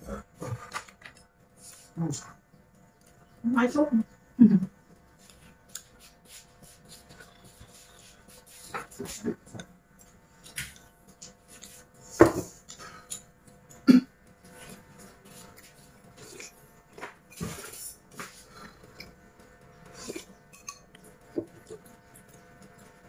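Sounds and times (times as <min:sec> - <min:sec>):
chewing and slurping: 0:05.2 - 0:23.0
chopsticks tapping glass bowls: 0:20.1 - 0:21.6.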